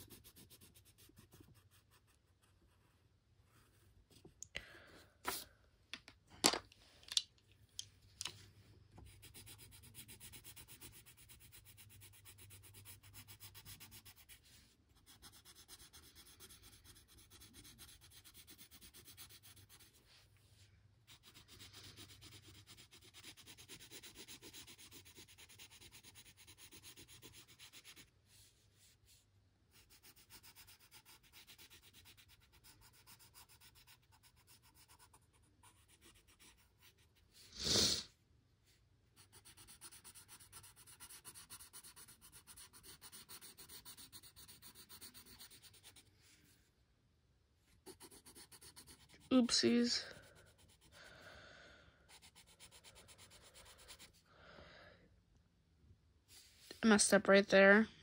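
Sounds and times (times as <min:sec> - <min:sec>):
pencil scratching on paper: 0:00.0 - 0:04.2, 0:09.0 - 0:38.0, 0:39.2 - 0:46.6, 0:47.7 - 0:51.0, 0:52.1 - 0:54.2.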